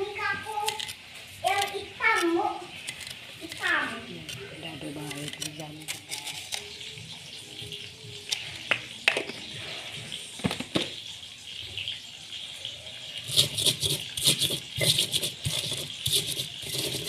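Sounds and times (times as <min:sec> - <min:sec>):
stone pestle crushing in mortar: 0:13.3 - 0:17.0.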